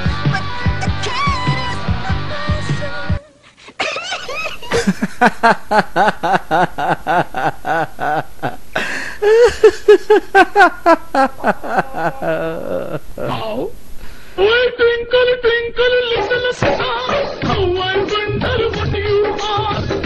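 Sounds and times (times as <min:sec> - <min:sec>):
man laughing hard: 0:03.8 - 0:13.4.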